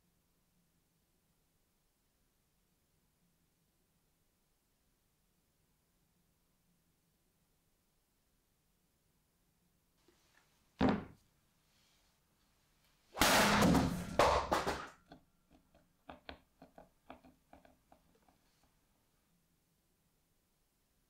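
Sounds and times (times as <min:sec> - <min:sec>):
small ticks and taps: 0:15.1 - 0:18.4.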